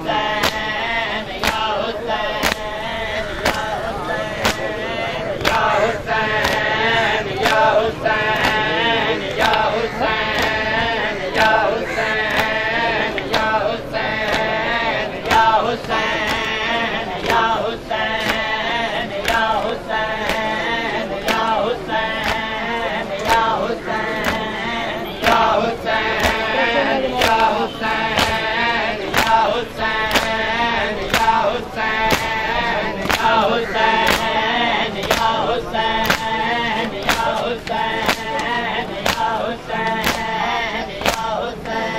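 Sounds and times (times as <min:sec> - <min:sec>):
men chanting in chorus: 0:00.0 - 0:41.9
chest-beating slaps: 0:05.4 - 0:14.6, 0:21.2 - 0:22.6, 0:23.2 - 0:24.6, 0:25.2 - 0:29.4, 0:36.0 - 0:40.3.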